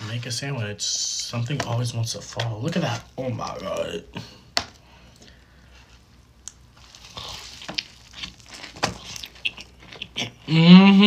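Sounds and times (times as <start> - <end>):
crunchy chewing: 6.4 - 10.5.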